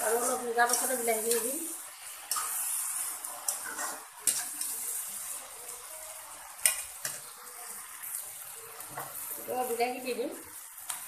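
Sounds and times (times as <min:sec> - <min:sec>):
metal spatula scraping a pan: 0:00.0 - 0:05.4
food sizzling in a wok: 0:00.0 - 0:11.0.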